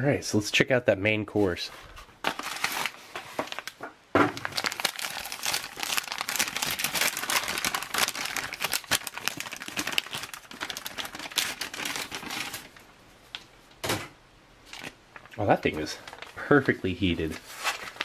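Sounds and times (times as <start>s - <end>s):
plastic and foil packaging crinkling: 2.2s - 13.5s, 14.6s - 18.0s.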